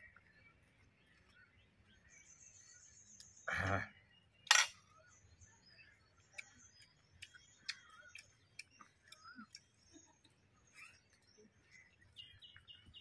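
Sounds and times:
man eating with fingers: 0:06.3 - 0:10.0.

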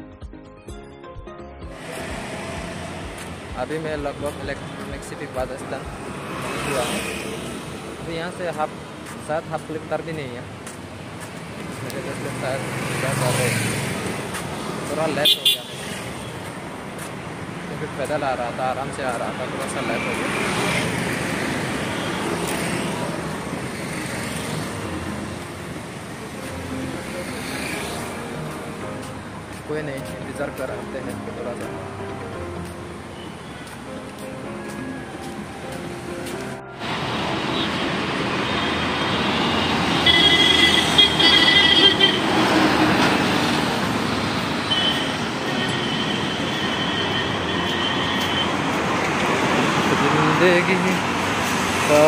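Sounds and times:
heavy road traffic: 0:00.0 - 0:52.0
cars and motorbikes passing: 0:01.7 - 0:52.0
long high-pitched horn: 0:39.2 - 0:42.3.

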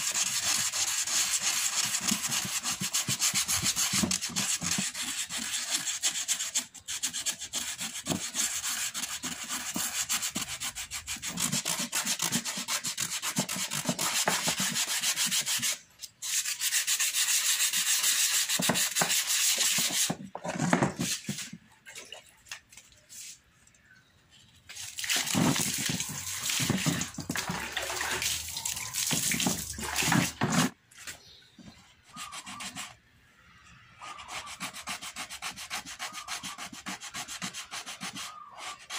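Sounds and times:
sandpaper scratching plastic chair: 0:00.0 - 0:21.6, 0:24.6 - 0:33.0, 0:34.0 - 0:38.9.

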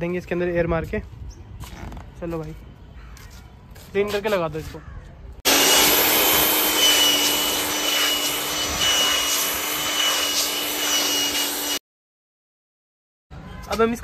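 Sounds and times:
air blow gun hissing: 0:05.5 - 0:11.8.

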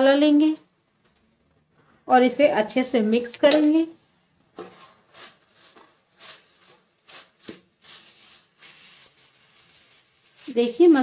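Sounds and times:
spatula scraping metal pan: 0:04.6 - 0:11.0.

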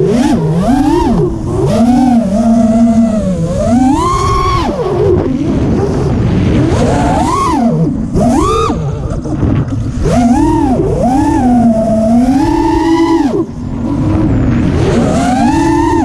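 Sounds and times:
quadcopter motors whining: 0:00.0 - 0:16.0
rush of air: 0:04.5 - 0:16.0.

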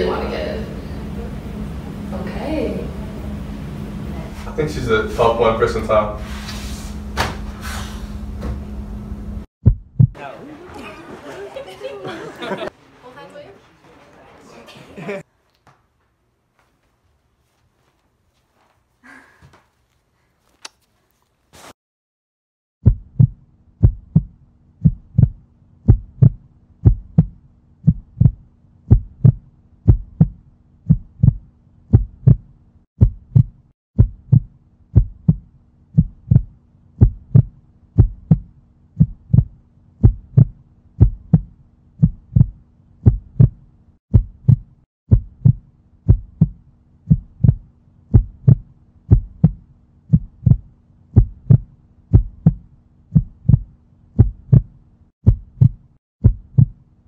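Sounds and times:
heartbeat: 0:09.6 - 0:10.2, 0:22.8 - 0:56.8.

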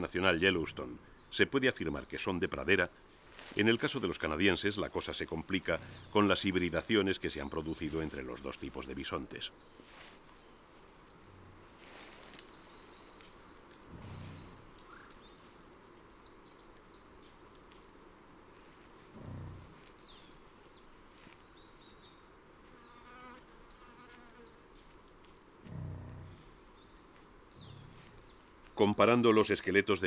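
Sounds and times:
insects buzzing: 0:00.0 - 0:29.0
bird chirps: 0:10.4 - 0:17.6, 0:23.7 - 0:28.9.

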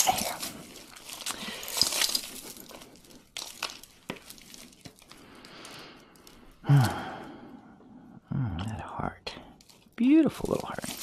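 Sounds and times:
beads and metal pieces clicking: 0:00.0 - 0:05.2
soft rustle: 0:00.0 - 0:06.6, 0:09.5 - 0:11.0.

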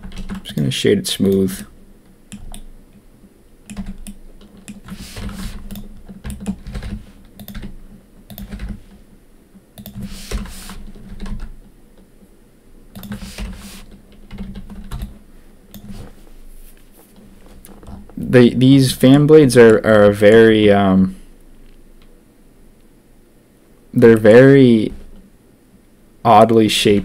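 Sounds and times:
keyboard typing: 0:00.0 - 0:00.6, 0:01.3 - 0:02.7, 0:03.6 - 0:09.0, 0:09.8 - 0:12.1, 0:12.9 - 0:16.0.

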